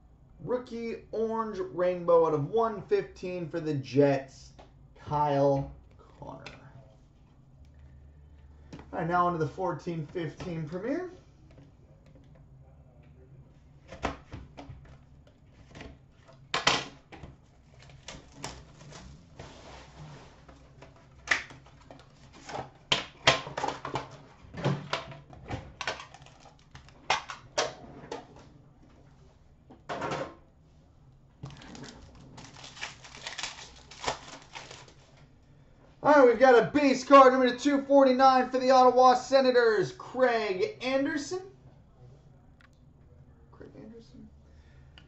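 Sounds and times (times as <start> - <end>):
cardboard and plastic packaging rustling: 17.1 - 27.6, 31.4 - 35.3
wrapper crinkling: 25.8 - 27.1, 31.4 - 35.2.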